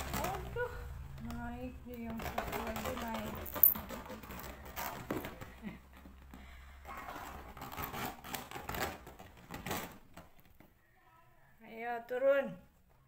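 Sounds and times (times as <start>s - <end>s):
kitten claws scratching cloth: 7.1s - 10.1s.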